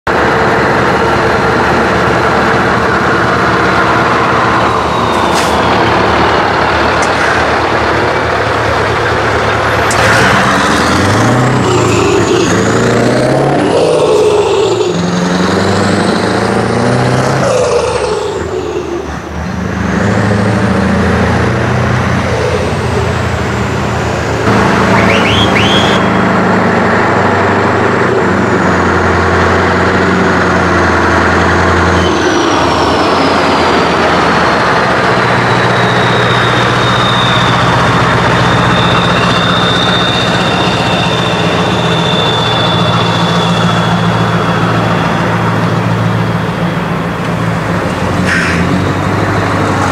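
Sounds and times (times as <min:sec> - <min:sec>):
diesel truck engine revving: 0:00.1 - 0:49.9
high whistle: 0:24.9 - 0:26.2, 0:35.5 - 0:46.4.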